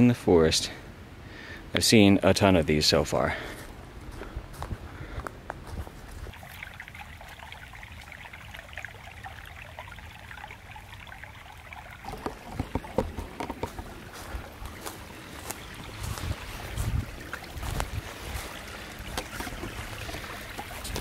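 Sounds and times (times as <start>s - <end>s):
faint trickling stream: 0.0s - 21.0s
footsteps crunching dry leaves: 13.2s - 20.0s.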